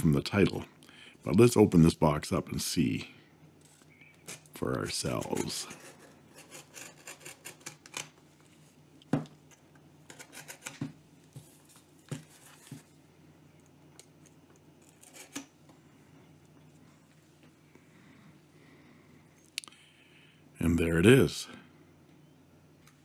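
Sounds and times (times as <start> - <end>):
knife cutting cardboard: 5.2 - 7.9.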